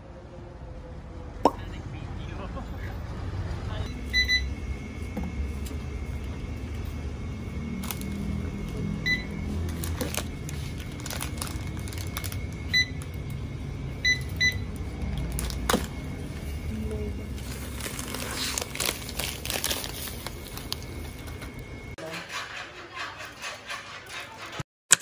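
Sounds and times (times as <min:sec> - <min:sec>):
barcode scanner beeps: 0:03.9 - 0:04.5, 0:09.0 - 0:09.4, 0:14.0 - 0:14.7
plastic bag rustling: 0:09.7 - 0:12.5, 0:17.3 - 0:21.2.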